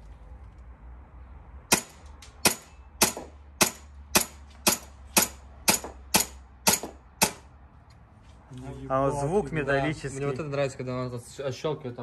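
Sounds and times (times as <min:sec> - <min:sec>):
airsoft pistol shots: 0:01.7 - 0:07.4.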